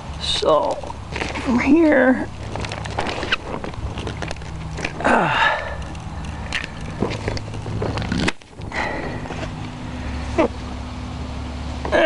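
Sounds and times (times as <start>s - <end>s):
steady low hum: 0.0s - 12.0s
plastic film crinkling: 0.8s - 5.1s.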